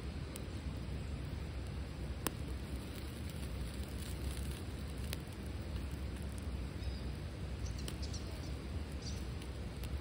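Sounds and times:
fire pops: 0.0 - 10.0
wood fire crackling: 0.0 - 10.0.

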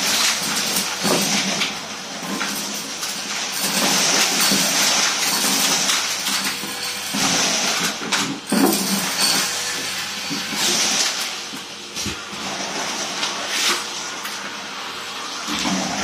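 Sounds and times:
vacuum cleaner suction hiss: 9.0 - 16.0.

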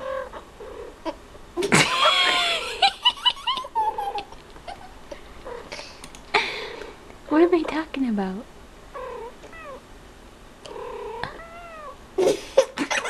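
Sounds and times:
child laughing: 1.6 - 5.2, 12.2 - 13.0.

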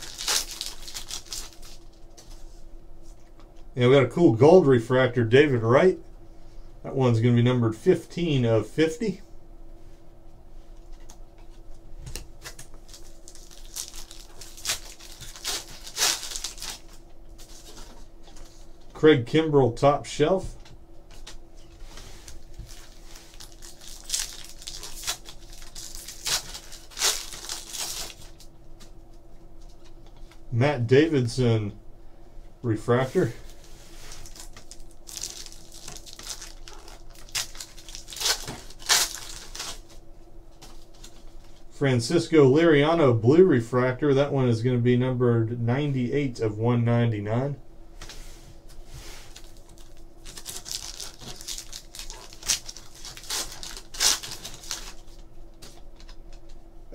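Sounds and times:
foil wrapper crinkling and tearing: 0.0 - 2.2, 12.1 - 18.6, 22.0 - 28.5, 33.5 - 40.0, 49.3 - 56.5.

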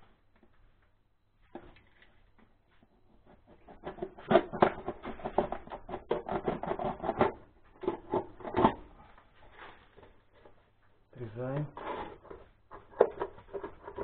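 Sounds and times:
tool scraping plastic part: 3.2 - 8.9, 11.6 - 14.0.

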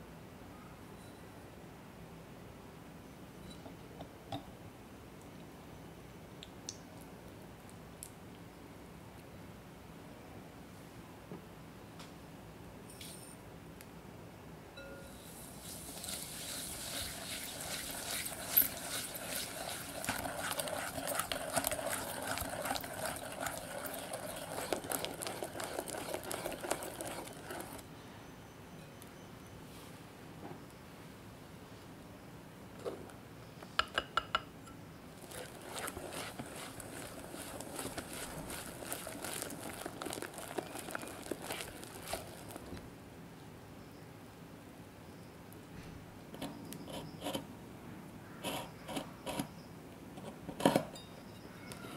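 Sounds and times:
whisk beating in glass bowl: 15.3 - 27.8, 35.2 - 42.8.

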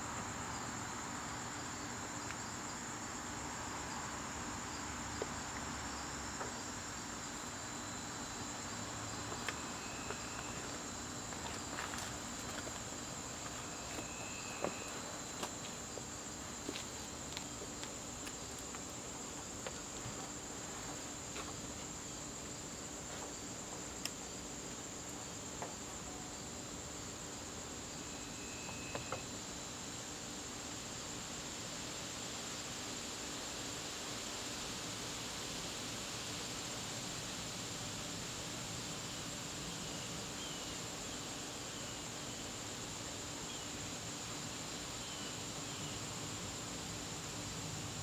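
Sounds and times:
crickets chirping: 0.0 - 48.0.

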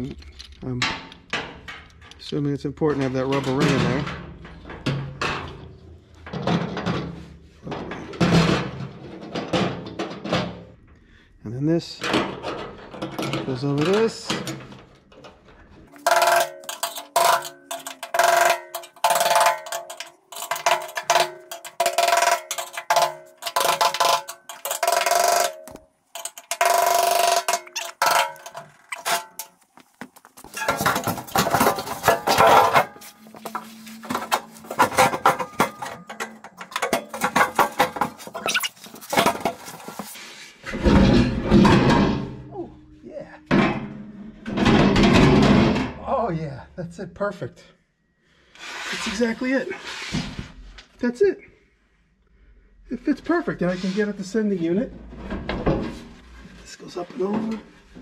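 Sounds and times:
metal knocks and clatter: 0.2 - 10.9, 12.0 - 42.5, 43.4 - 46.0, 54.8 - 58.0
heavy scraping and thumps: 12.0 - 42.6, 43.4 - 46.0.

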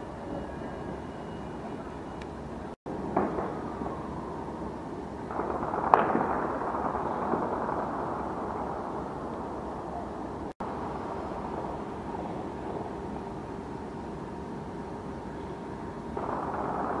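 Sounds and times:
distant night rumble: 0.0 - 17.0
distant gunshots echoing: 3.1 - 4.2, 5.3 - 12.8, 16.2 - 17.0.

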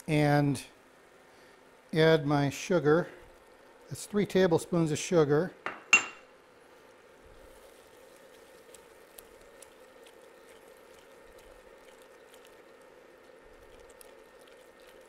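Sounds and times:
wooden spoon stirring sauce in pot: 7.3 - 15.0.

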